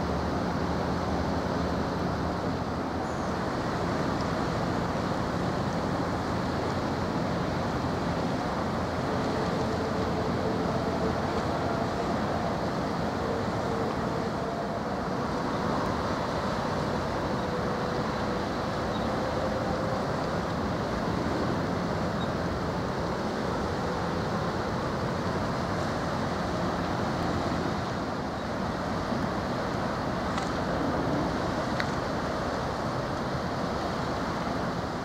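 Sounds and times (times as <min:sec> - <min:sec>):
ship engines rumbling: 0:00.0 - 0:35.0
wind: 0:00.0 - 0:35.0.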